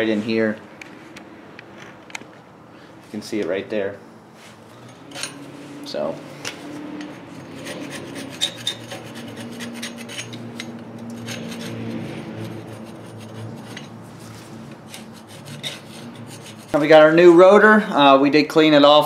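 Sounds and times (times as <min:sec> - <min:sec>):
scraping rust off metal: 0:04.4 - 0:17.2.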